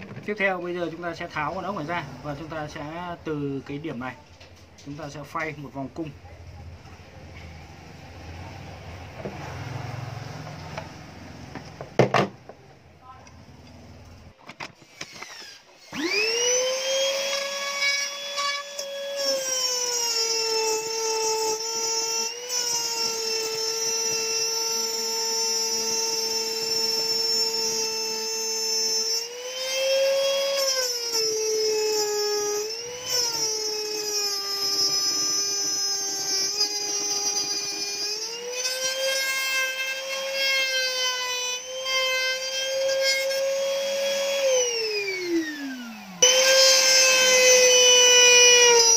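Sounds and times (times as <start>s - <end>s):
electric router whining: 13.1s - 48.9s.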